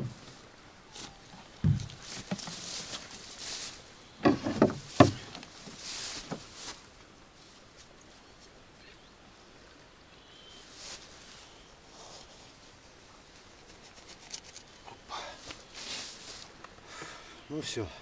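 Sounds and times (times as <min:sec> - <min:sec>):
rustling of clothing grass and rope: 0:00.0 - 0:18.0
knocks in plastic boat hull: 0:04.2 - 0:05.2.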